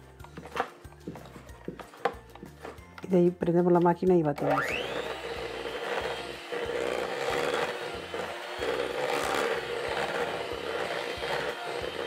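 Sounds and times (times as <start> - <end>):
electric hand mixer running: 4.4 - 12.0.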